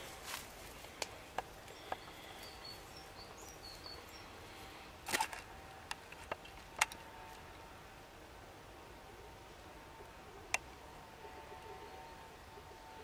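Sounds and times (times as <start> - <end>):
twigs rustling and snapping: 0.0 - 2.9, 5.0 - 7.4.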